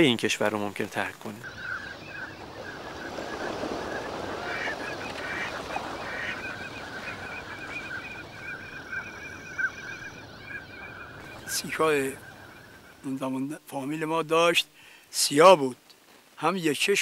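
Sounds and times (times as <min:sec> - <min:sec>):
flock of ducks calling: 0:01.2 - 0:13.1.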